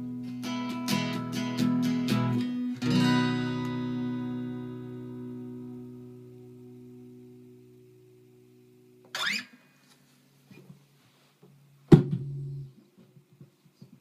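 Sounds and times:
acoustic guitar chord ringing: 0.0s - 9.4s.

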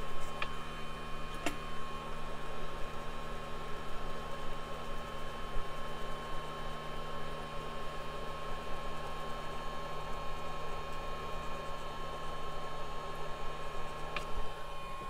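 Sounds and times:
electrical equipment hum and hiss: 0.0s - 4.6s
thin high whine: 14.2s - 15.0s.

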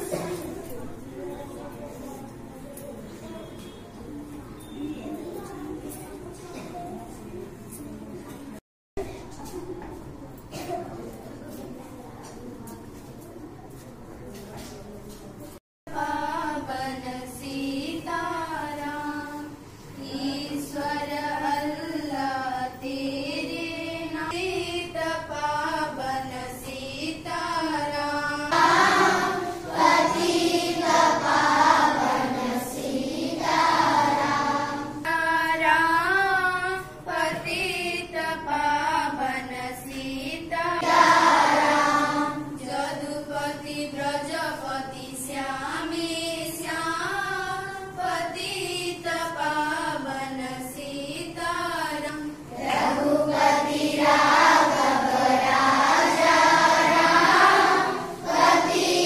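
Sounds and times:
girls singing unaccompanied: 15.9s - 59.0s.

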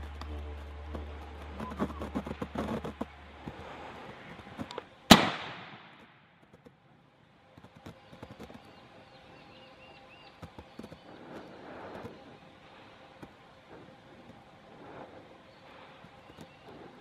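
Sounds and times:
faint bird chirps: 0.3s - 3.2s, 7.8s - 17.0s
rifle shot: 5.1s - 6.0s.

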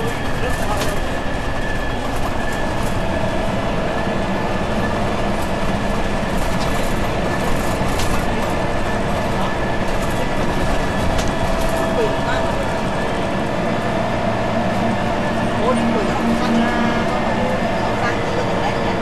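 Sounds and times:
bus diesel engine running: 0.0s - 19.0s
road noise: 0.0s - 19.0s.

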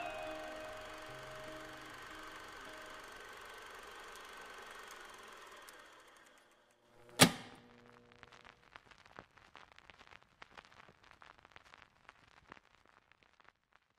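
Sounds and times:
faint crackling and popping: 7.0s - 13.9s.

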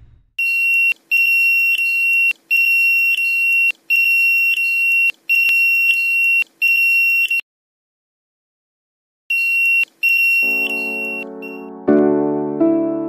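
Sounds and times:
alarm buzzer beeping: 9.3s - 11.7s.

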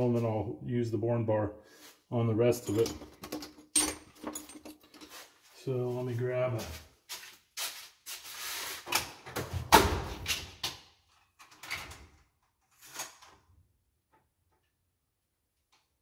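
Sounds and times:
tools clattering: 2.6s - 5.3s.

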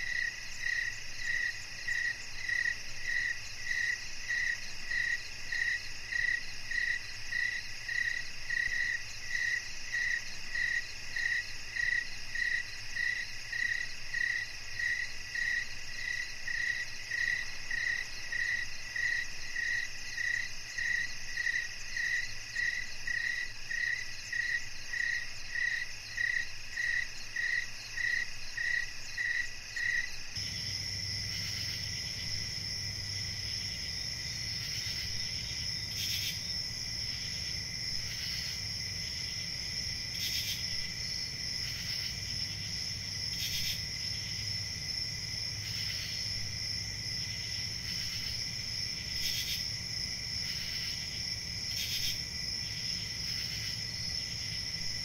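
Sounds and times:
pulsing insect call: 29.8s - 55.0s.

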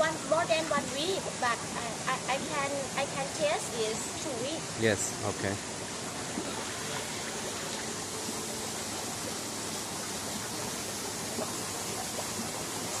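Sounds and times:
water rushing in tanks: 0.0s - 13.0s.

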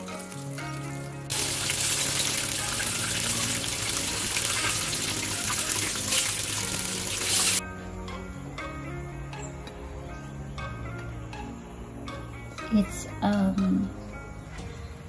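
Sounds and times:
deep-frying sizzling and crackling: 0.0s - 7.6s
background music: 0.0s - 15.0s.

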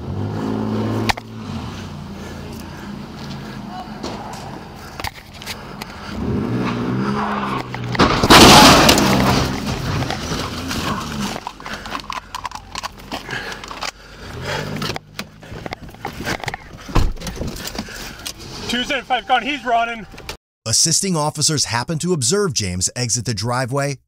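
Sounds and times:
car engine revving: 0.0s - 16.7s
tyres skidding: 0.0s - 20.4s.

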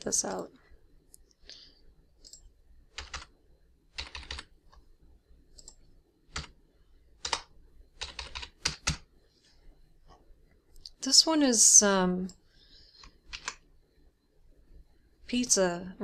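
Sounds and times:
keyboard typing: 2.2s - 3.3s, 3.9s - 4.8s, 5.5s - 6.6s, 7.2s - 9.1s, 13.0s - 13.6s.

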